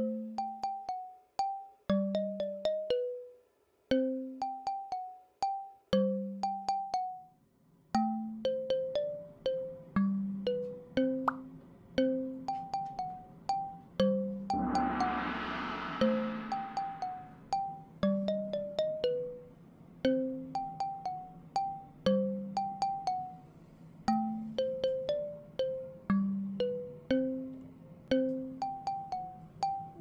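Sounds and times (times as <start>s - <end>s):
bouncy bell-like melody: 0.0s - 7.4s, 8.0s - 23.5s, 24.1s - 30.0s
low bass notes: 14.5s - 17.4s.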